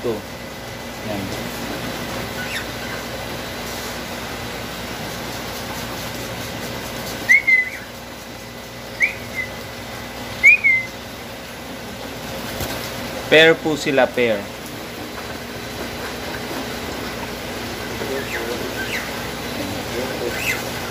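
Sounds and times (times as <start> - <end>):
steady background hum: 0.0 - 20.9
bird whistled chirps: 2.4 - 2.7, 7.2 - 8.0, 9.0 - 9.6, 10.4 - 11.0, 18.2 - 19.1, 20.3 - 20.7.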